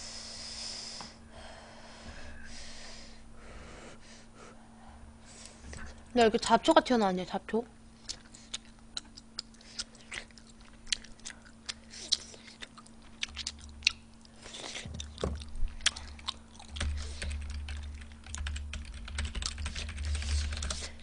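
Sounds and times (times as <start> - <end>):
woman chewing food: 8.0 - 18.8.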